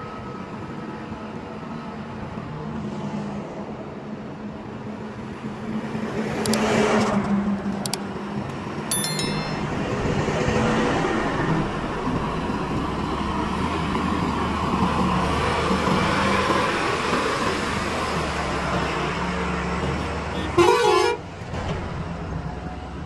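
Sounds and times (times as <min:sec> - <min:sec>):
diesel truck engines: 0:09.8 - 0:23.0.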